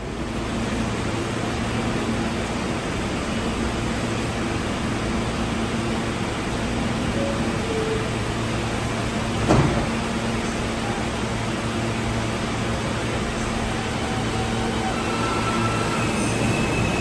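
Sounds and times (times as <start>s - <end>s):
train air-conditioning hiss: 0.0s - 17.0s.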